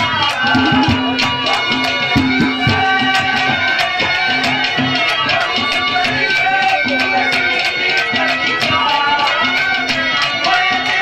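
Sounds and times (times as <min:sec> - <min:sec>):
hand drum beat: 0:00.0 - 0:11.0
held melody notes: 0:00.4 - 0:03.4.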